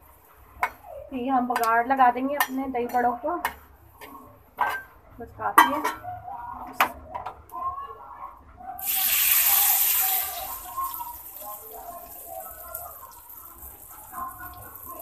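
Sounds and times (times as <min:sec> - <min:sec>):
hot oil sizzling: 0:08.8 - 0:15.0
soft oil crackle: 0:08.8 - 0:15.0.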